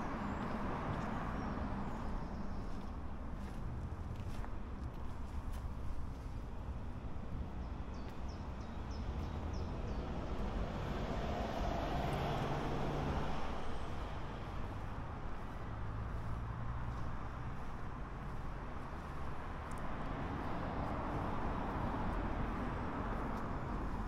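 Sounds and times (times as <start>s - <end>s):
vehicle driving past: 10.2s - 17.7s.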